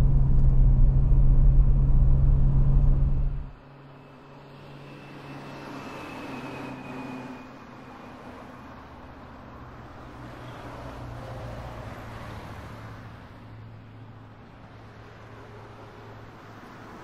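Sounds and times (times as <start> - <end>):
vehicle engine hum: 0.0 - 4.8
road noise: 0.0 - 17.0.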